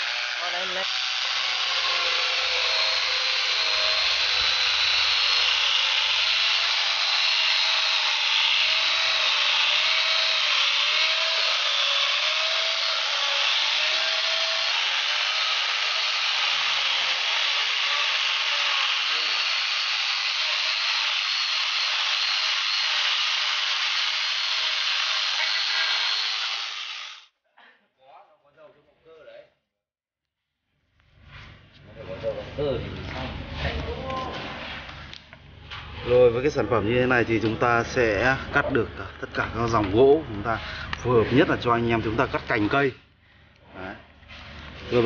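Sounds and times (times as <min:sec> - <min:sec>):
motor whine: 0:00.0 - 0:27.2
power chainsaw cutting wood: 0:00.0 - 0:27.3.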